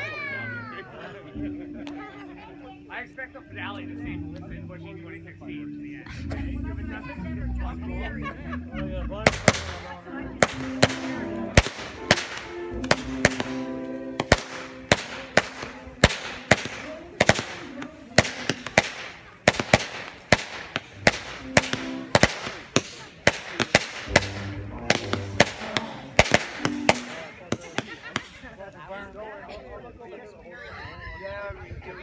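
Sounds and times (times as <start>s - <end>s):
fireworks bangs and crackles: 9.3s - 28.4s.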